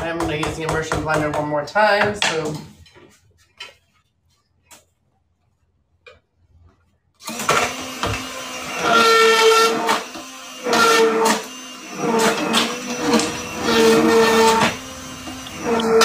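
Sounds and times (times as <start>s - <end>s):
immersion blender motor whine: 7.2s - 16.0s.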